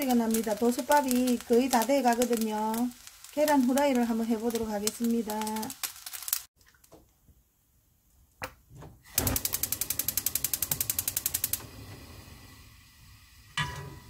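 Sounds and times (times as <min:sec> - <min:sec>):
gas burner hissing: 0:00.0 - 0:06.5, 0:09.0 - 0:14.0
stove igniter clicking: 0:09.1 - 0:12.1.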